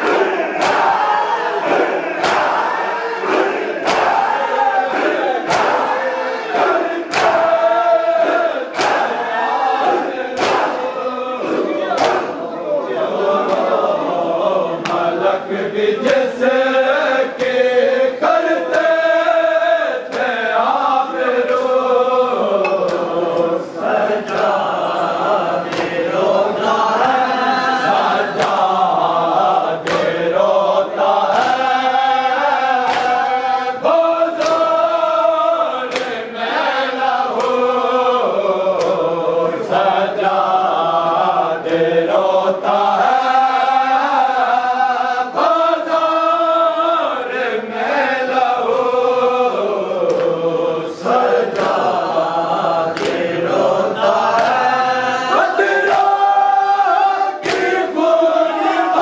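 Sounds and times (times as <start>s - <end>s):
group chanting a lament: 0.0s - 59.0s
hands striking chests: 10.4s - 10.8s.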